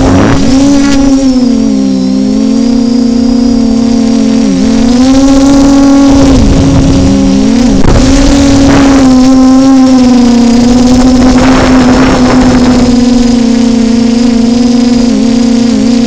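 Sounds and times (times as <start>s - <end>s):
drone motors whining: 0.0s - 16.0s
wind buffeting microphone: 5.9s - 9.4s.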